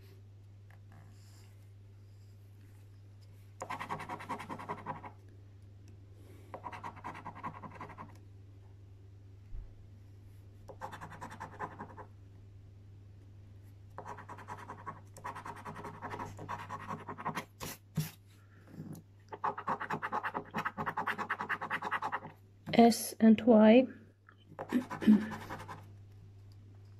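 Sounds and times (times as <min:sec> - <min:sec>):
coin scratching a scratchcard: 0:03.6 - 0:05.1, 0:14.0 - 0:17.8, 0:19.4 - 0:22.3, 0:24.6 - 0:25.8.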